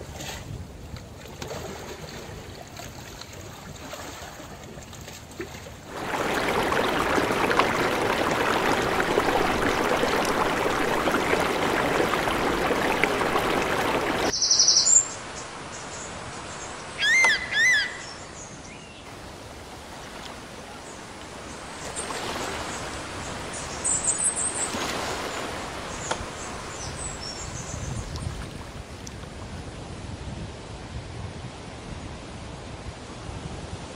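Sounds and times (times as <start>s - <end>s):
floodwater rushing: 1.4s - 14.4s, 19.1s - 29.7s
birds calling and chirping: 17.0s - 18.9s.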